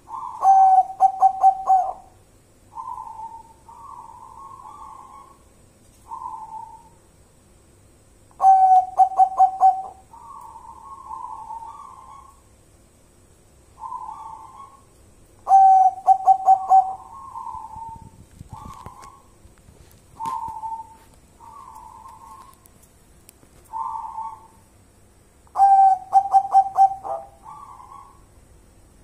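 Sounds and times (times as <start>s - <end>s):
dove cooing: 0.0s - 5.5s, 6.1s - 7.0s, 8.4s - 12.4s, 13.8s - 19.4s, 20.1s - 22.7s, 23.7s - 24.6s, 25.5s - 28.3s.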